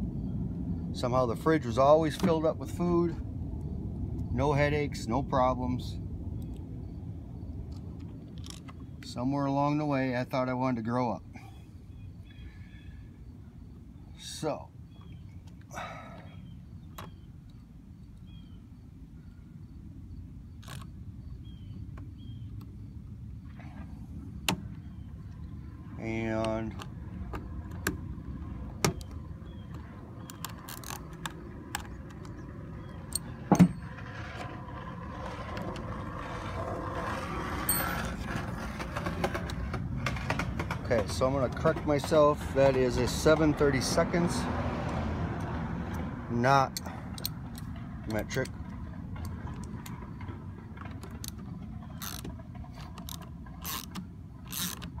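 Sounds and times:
low background rumble: 0.0 - 10.3, 11.2 - 44.5.

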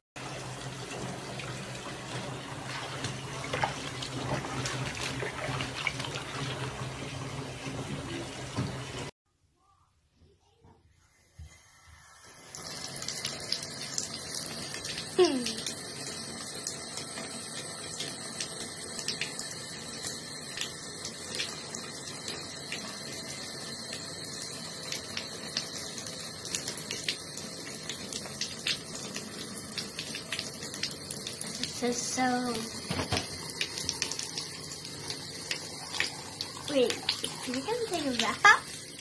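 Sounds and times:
water splashing into bathtub: 0.2 - 9.1, 24.8 - 39.0.

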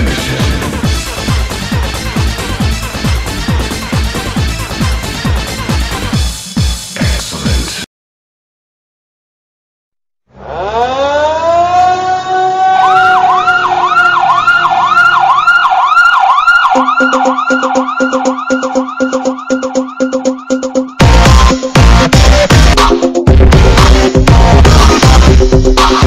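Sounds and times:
electronic music with heavy bass: 0.0 - 7.8, 16.2 - 26.0
warbling siren: 10.3 - 21.2.

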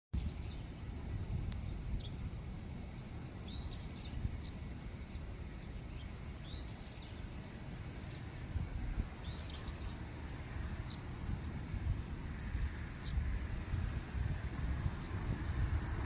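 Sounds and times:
small birds chirping: 0.2 - 11.9, 12.8 - 13.4, 14.8 - 15.4
low outdoor rumble: 0.2 - 16.0.

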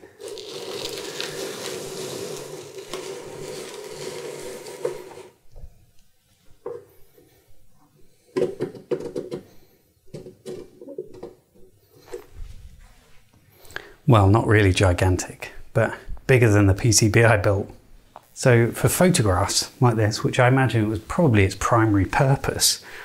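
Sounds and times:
device scraping across surface: 0.1 - 5.4.

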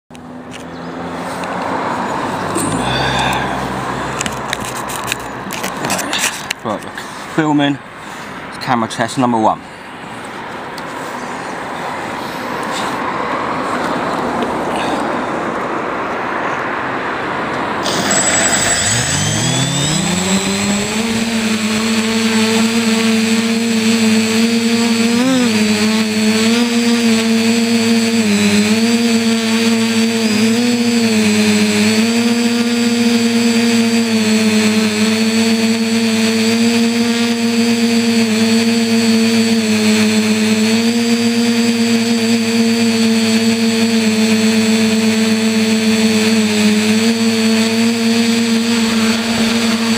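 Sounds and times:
quadcopter motors whirring: 0.5 - 6.5, 17.8 - 49.9.

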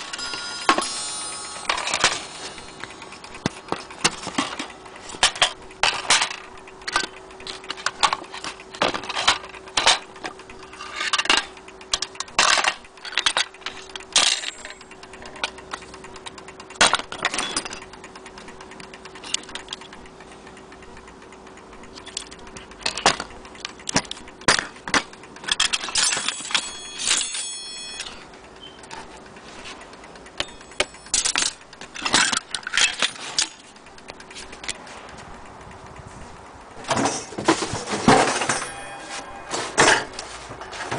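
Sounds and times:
pitched ringing tone: 0.0 - 3.7, 26.0 - 28.8, 30.4 - 31.8, 38.3 - 40.4
metal clock parts clinking: 0.0 - 20.0, 21.8 - 34.8.

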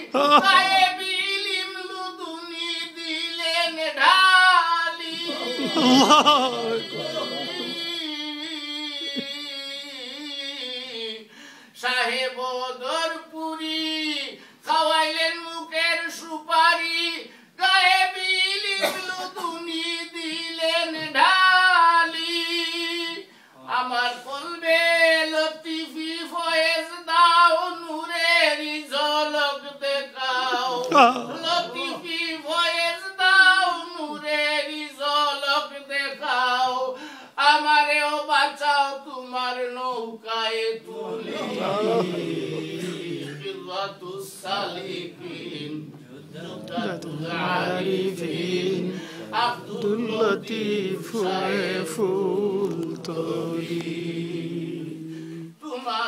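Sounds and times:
man singing devotional song: 0.0 - 56.0
woman singing unaccompanied: 23.9 - 36.8, 46.6 - 53.8.

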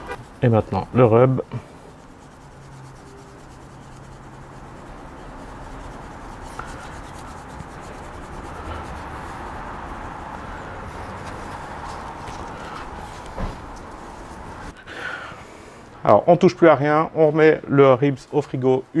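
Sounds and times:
dry rub shaken from shaker: 0.0 - 14.8.

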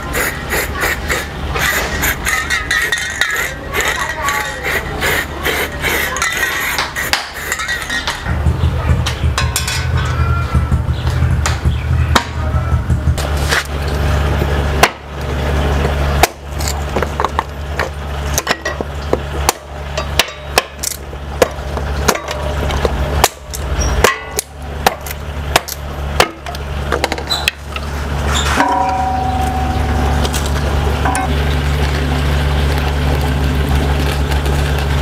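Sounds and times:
steady low hum: 0.0 - 35.0
hatchet chopping wood: 6.3 - 7.5, 14.8 - 15.1, 16.2 - 16.4, 18.4 - 27.6.

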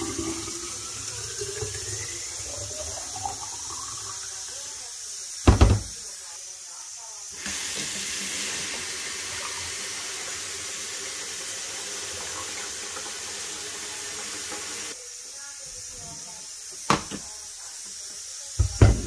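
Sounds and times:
tap water pouring into pitcher: 0.0 - 4.7, 7.4 - 15.0.

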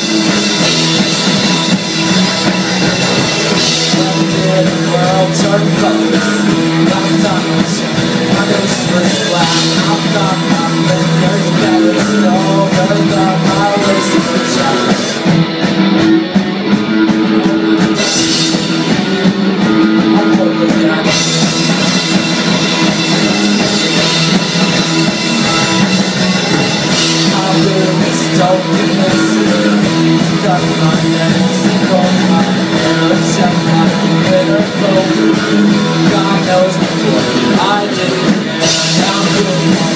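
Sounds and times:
bass guitar: 0.0 - 39.9
drum kit: 0.0 - 39.9
electric guitar: 0.0 - 39.9.

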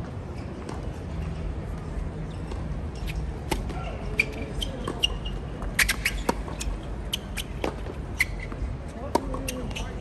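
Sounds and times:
shoes squeaking on court: 0.0 - 10.0
racquets hitting tennis ball: 2.4 - 10.0.

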